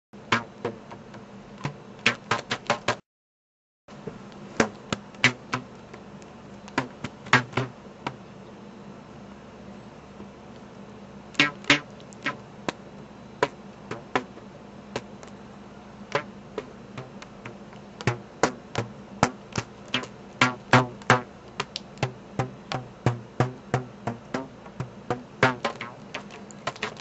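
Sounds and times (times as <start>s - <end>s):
rubber bands twanging: 0.3s - 3.0s, 4.5s - 5.8s, 6.7s - 8.2s, 11.4s - 12.8s, 13.4s - 14.4s, 16.1s - 27.0s.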